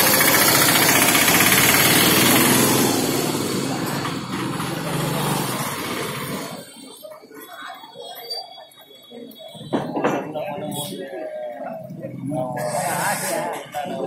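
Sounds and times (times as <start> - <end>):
auto-rickshaw engine chugging: 0.0 - 9.1.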